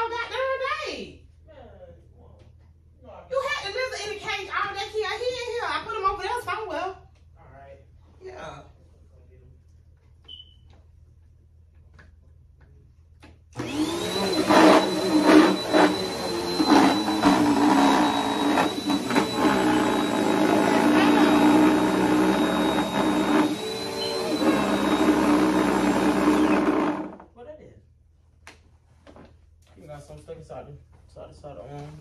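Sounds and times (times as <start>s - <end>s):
vacuum cleaner motor whine: 13.6s - 27.2s.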